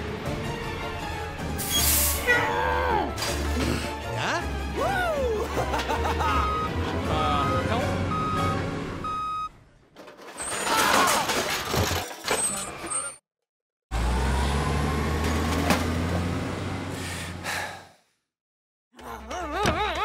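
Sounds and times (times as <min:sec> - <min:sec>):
music: 0:00.0 - 0:08.7
clatter of tumbling bricks: 0:09.9 - 0:12.6.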